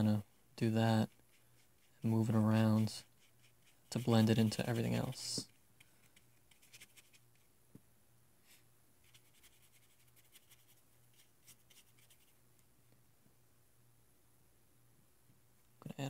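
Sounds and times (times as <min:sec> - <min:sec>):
brush stroking over damp paper: 0:00.0 - 0:07.5, 0:08.4 - 0:12.4.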